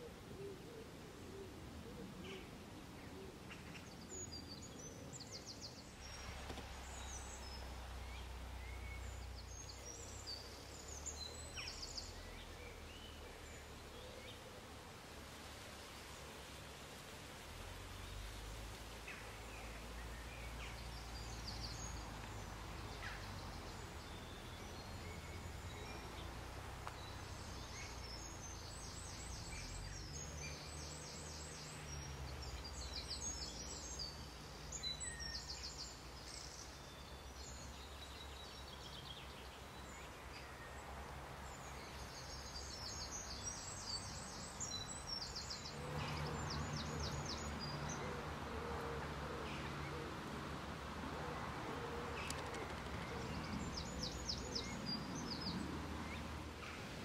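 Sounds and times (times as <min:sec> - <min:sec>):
small songbirds singing: 0:00.0 - 0:16.8, 0:17.4 - 0:57.0
low outdoor rumble: 0:05.8 - 0:34.8.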